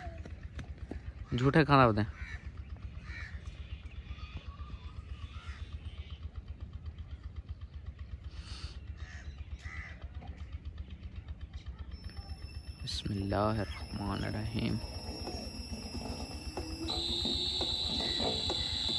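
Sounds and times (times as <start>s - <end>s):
low pulsing machine running: 0.0s - 18.9s
crows cawing: 1.2s - 3.6s, 5.3s - 5.7s, 9.0s - 10.1s.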